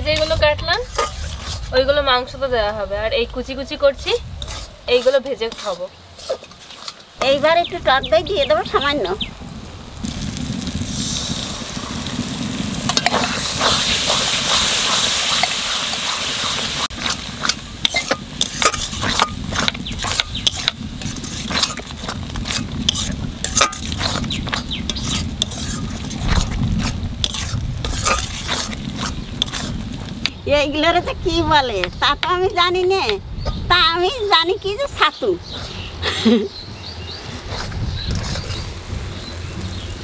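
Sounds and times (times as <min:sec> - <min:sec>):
masala sizzling in a pan: 0:00.0 - 0:40.0
metal ladle scraping a pan: 0:00.1 - 0:02.2, 0:04.0 - 0:07.4, 0:10.9 - 0:30.3, 0:33.4 - 0:36.0, 0:37.2 - 0:38.8.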